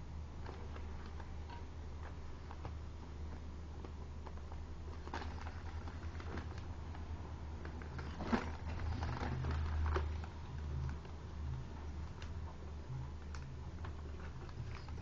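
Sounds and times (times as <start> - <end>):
steady low hum: 0.0 - 15.0
paper crinkling: 4.3 - 11.2.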